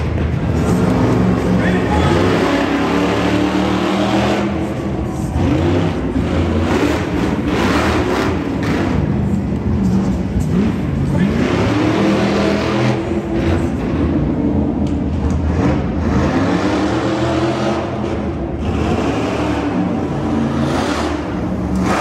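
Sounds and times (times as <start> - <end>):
truck engine revving: 0.0 - 22.0.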